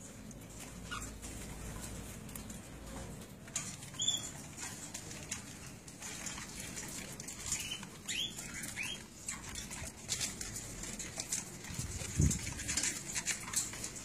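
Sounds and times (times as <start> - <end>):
cockatiels chirping: 0.6 - 1.5, 3.9 - 4.4, 7.4 - 10.2.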